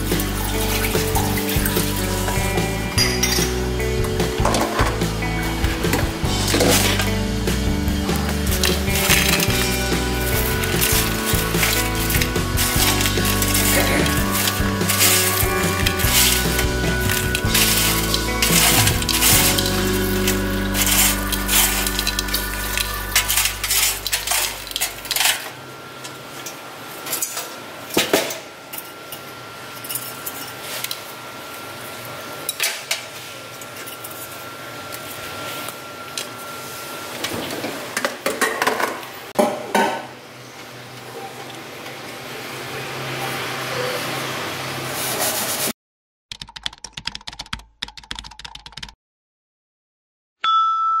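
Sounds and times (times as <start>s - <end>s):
bell-like ding: 50.4s - 51.0s
faint steady high tone: 50.4s - 51.0s.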